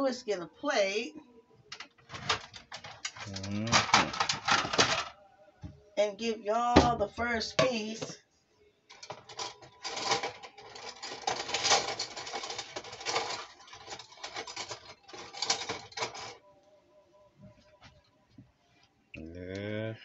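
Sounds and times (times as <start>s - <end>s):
dishes and utensils clattering: 1.8s - 5.2s, 8.9s - 16.4s.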